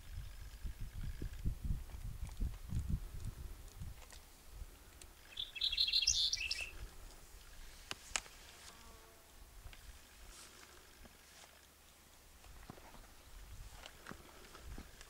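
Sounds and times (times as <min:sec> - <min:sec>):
bird singing high phrase: 0:05.2 - 0:06.8.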